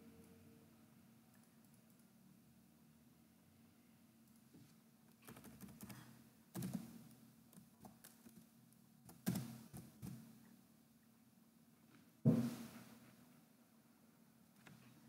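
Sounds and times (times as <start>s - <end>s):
keyboard typing: 5.2s - 6.9s.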